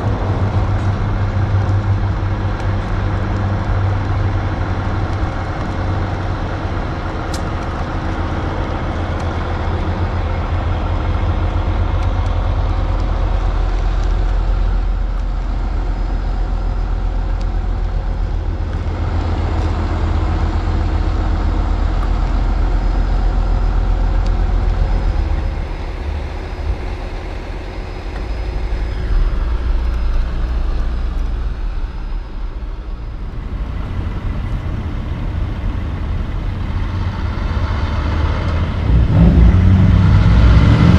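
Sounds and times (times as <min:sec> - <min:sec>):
truck diesel engine rumbling: 0:00.0 - 0:40.9.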